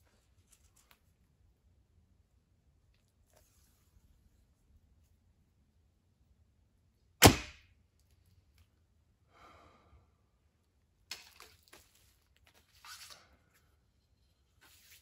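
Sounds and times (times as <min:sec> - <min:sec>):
arrow striking target: 0:07.2 - 0:07.6.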